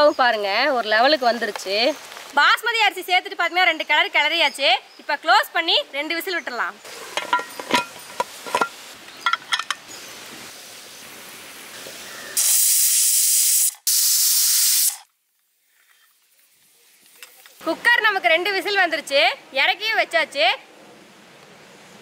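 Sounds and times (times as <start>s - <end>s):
pressure cooker steam hissing: 11.7s - 15.1s.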